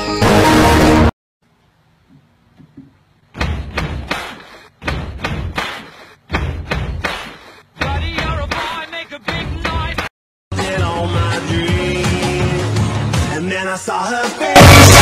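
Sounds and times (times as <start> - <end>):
heavy thuds: 3.3 - 9.9.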